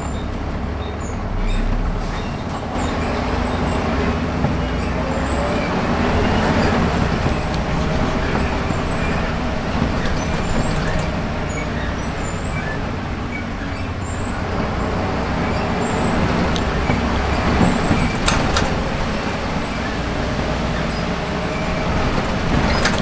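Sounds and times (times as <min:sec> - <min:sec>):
bus diesel engine running: 0:00.0 - 0:23.0
road noise: 0:00.0 - 0:23.0.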